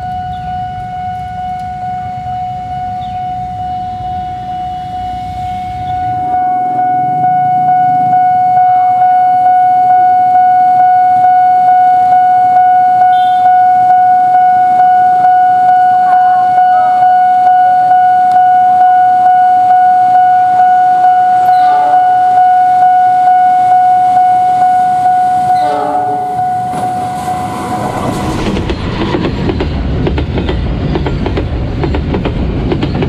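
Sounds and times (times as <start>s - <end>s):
traffic rumble: 0.0s - 8.9s, 26.8s - 33.0s
level crossing warning alarm: 0.0s - 29.0s.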